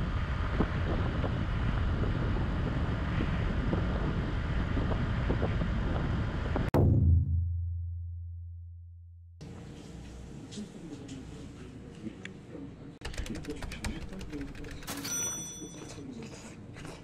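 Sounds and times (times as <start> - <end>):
wind buffeting microphone: 0.0 - 6.7
deep booming tone: 6.6 - 9.4.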